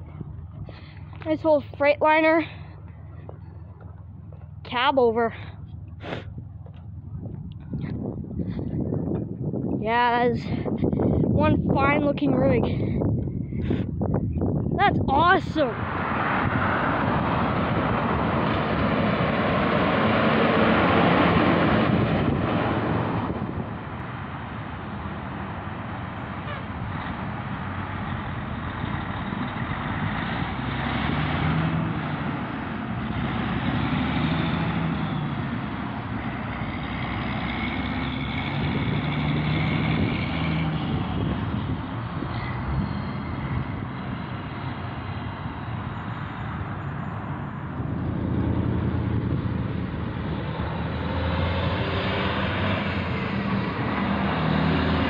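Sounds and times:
traffic rumble: 0.0s - 55.0s
truck engine running: 0.0s - 55.0s
vehicle passing close: 0.0s - 55.0s.

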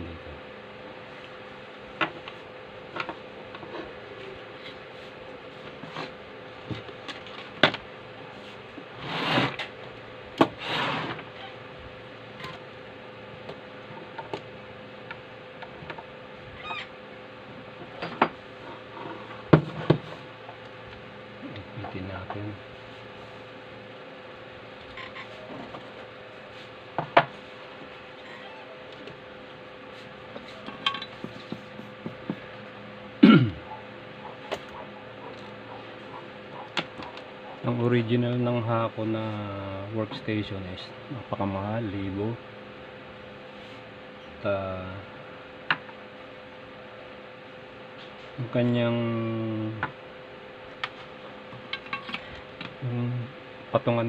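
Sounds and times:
faint steady hum: 0.0s - 54.0s
rustling scrapes: 8.3s - 9.7s
short throaty vocal sound: 33.2s - 33.7s.

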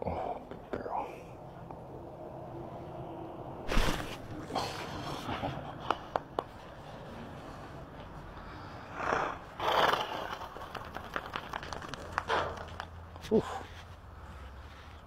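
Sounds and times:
horse snorting: 8.9s - 10.5s.

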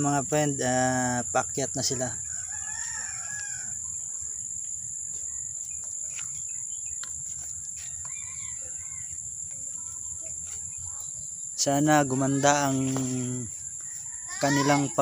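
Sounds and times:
crickets buzzing: 0.0s - 15.0s
rooster crowing: 2.2s - 4.1s, 7.7s - 9.2s, 13.7s - 15.0s.

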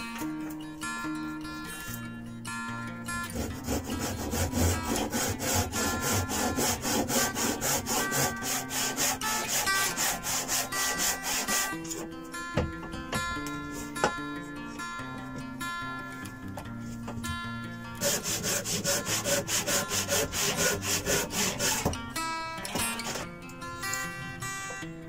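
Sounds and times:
hand saw cutting wood: 3.2s - 12.1s, 18.0s - 22.0s, 22.6s - 23.3s.

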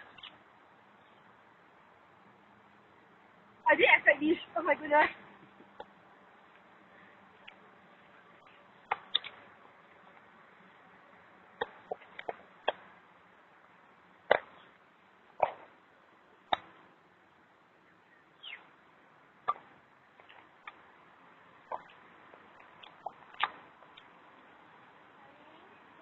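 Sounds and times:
faint background hiss: 0.0s - 26.0s.

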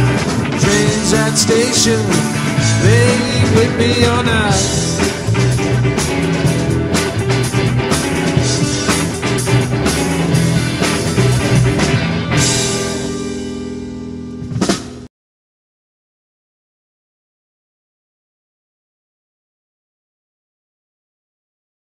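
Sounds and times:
busy drumming: 0.0s - 13.5s, 14.4s - 15.1s
live rock band playing: 0.0s - 15.1s.

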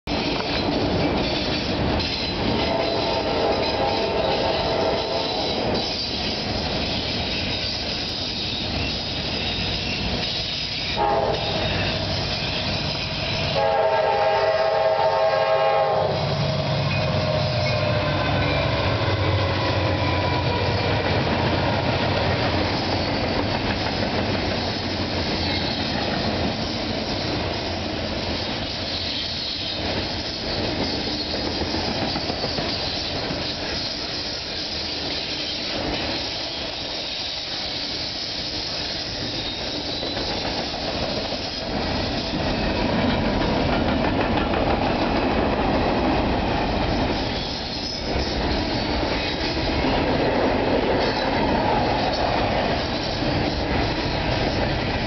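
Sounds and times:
diesel locomotives rumbling: 0.0s - 55.0s
railcars rumbling and clattering: 0.0s - 55.0s
locomotive horn: 2.5s - 5.7s, 10.8s - 12.6s, 13.5s - 20.9s.

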